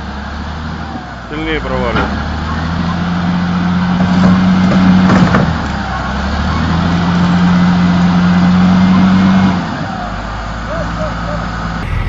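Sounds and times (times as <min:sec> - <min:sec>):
diesel engine running hard: 0:00.0 - 0:12.0.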